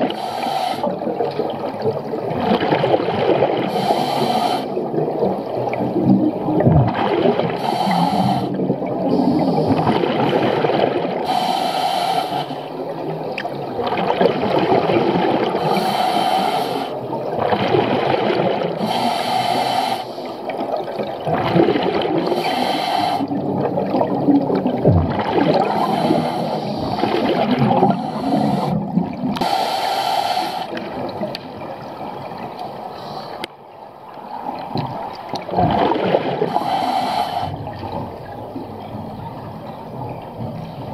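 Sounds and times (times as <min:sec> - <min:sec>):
regulator inhale hiss: 0:00.1 - 0:01.0, 0:03.7 - 0:04.8, 0:07.6 - 0:09.8, 0:11.2 - 0:12.7, 0:15.6 - 0:17.0, 0:18.8 - 0:20.5, 0:22.2 - 0:23.3, 0:25.8 - 0:27.0, 0:27.9 - 0:30.8, 0:32.8 - 0:33.5, 0:36.5 - 0:37.7.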